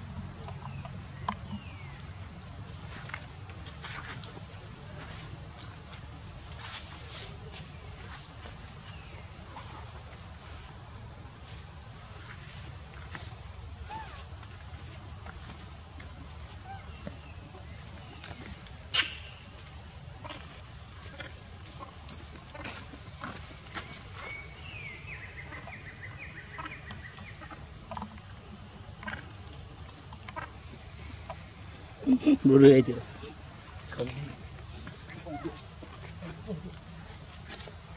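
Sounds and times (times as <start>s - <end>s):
insects droning: 0.0s - 37.9s
sharp click: 18.9s - 19.3s.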